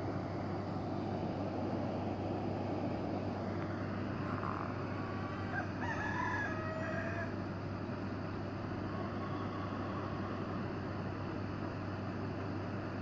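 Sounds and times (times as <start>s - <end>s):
background rumble with low hum: 0.0s - 13.0s
faint rooster crowing: 4.2s - 7.6s, 8.8s - 10.8s.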